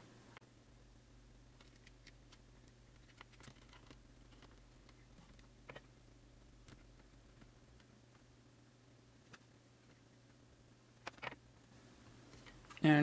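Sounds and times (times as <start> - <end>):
wires clicking on circuit board: 1.5 - 5.9.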